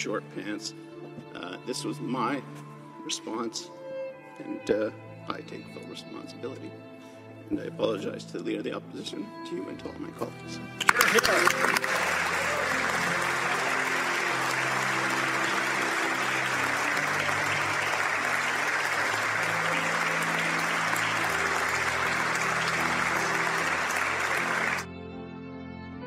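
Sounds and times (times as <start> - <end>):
slow sad background music: 0.0 - 26.0
sustained applause: 10.8 - 24.9.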